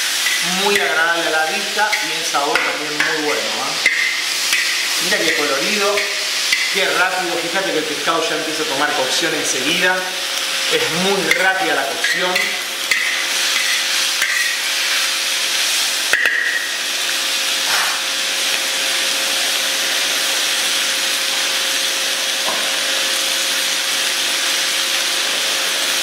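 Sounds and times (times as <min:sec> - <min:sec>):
stir-fry sizzling in wok: 0:00.0 - 0:26.0
metal spatula clinking on wok: 0:11.3 - 0:14.6.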